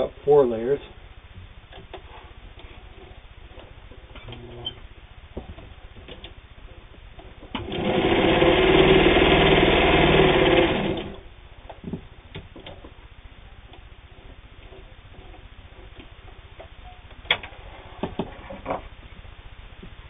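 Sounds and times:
electric sewing machine stitching: 7.5 - 11.2.

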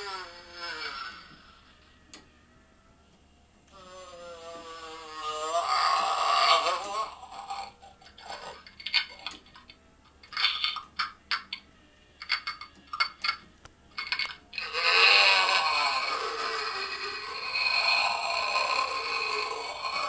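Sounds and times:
low wavering moan: 3.7 - 9.2, 14.0 - 20.0.

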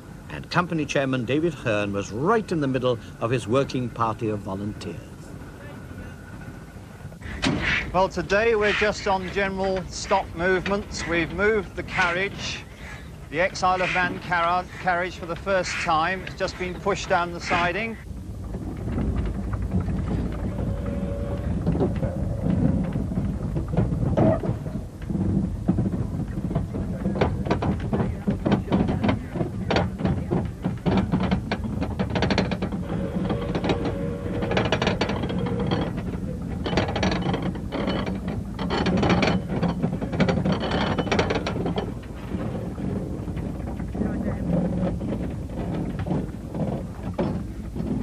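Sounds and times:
rolling wheels rumble: 0.0 - 48.0
carriage clattering and knocking: 21.5 - 48.0.

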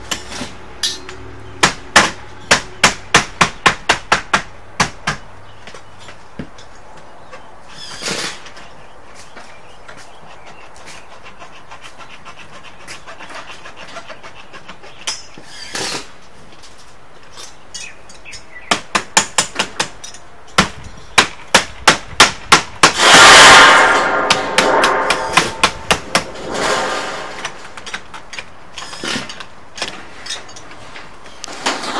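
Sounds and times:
hammer striking metal roofing: 0.0 - 5.2, 18.7 - 28.1
loud noisy burst: 22.8 - 27.6.

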